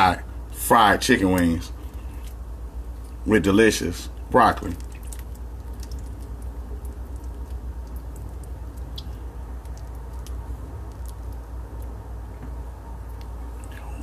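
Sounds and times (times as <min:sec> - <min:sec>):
steady low hum: 0:00.0 - 0:14.0
sticky clicks and squelches of hands: 0:04.6 - 0:12.0, 0:13.0 - 0:14.0.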